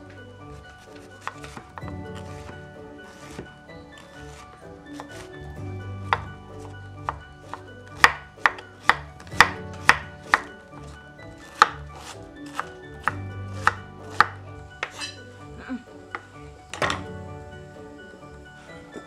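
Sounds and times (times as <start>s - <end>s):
knife chopping cabbage on board: 6.1s - 15.0s.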